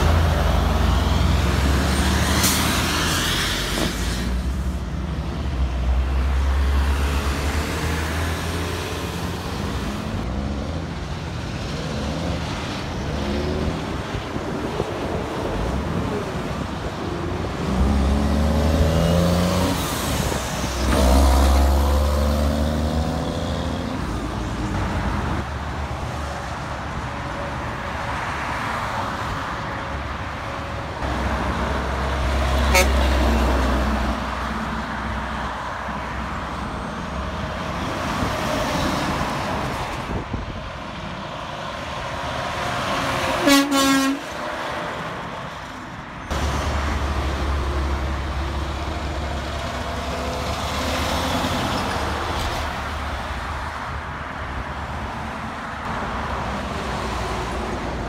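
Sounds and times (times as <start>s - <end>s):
truck engine revving and shifting: 0.0s - 4.3s, 17.4s - 24.2s
traffic noise: 0.0s - 58.0s
vehicle horn toot: 32.7s - 33.0s, 43.4s - 44.2s.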